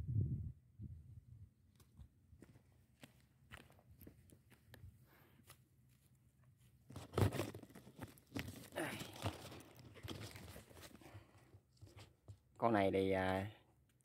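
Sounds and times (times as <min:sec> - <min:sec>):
footsteps crunching on dry mud: 0:02.4 - 0:11.2
rustling: 0:05.1 - 0:12.4.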